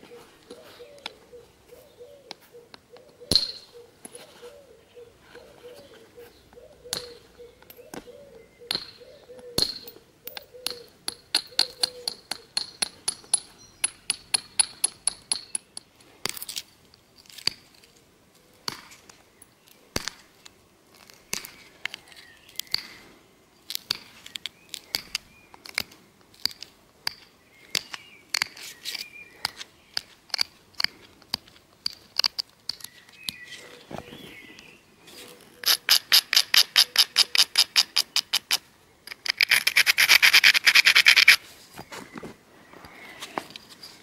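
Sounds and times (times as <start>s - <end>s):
stone-on-stone clicks: 9.6s - 17.8s, 23.6s - 33.6s, 35.6s - 41.4s.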